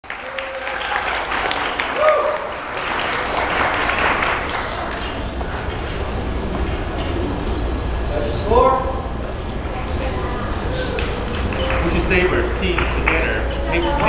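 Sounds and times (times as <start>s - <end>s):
audience applauding: 0.0s - 6.8s, 11.0s - 13.9s
voices calling out: 4.0s - 14.0s.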